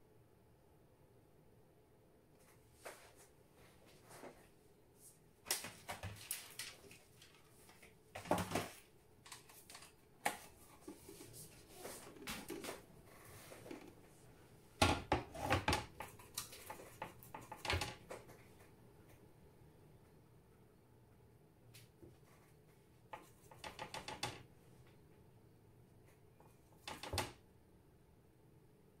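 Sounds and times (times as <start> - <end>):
painting tools clicking and knocking: 14.8 - 18.3, 23.2 - 24.4.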